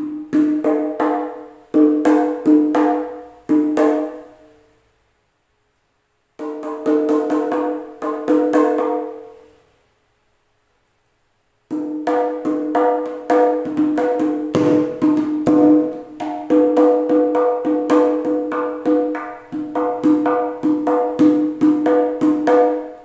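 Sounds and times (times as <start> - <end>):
hand drum strokes: 11.7 - 23.0.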